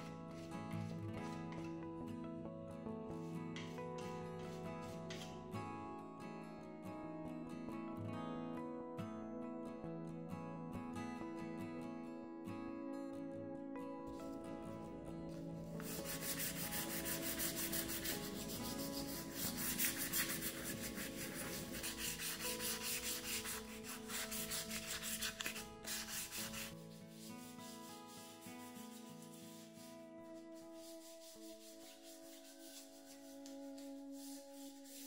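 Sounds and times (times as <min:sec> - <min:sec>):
soft background music: 0:00.0 - 0:35.0
sanding block rubbing: 0:15.8 - 0:35.0.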